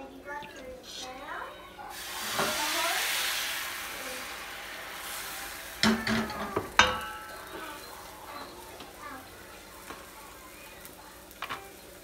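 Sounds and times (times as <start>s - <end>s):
batter sizzling in a frying pan: 1.8s - 12.0s
metal cookware clanks: 5.8s - 8.6s.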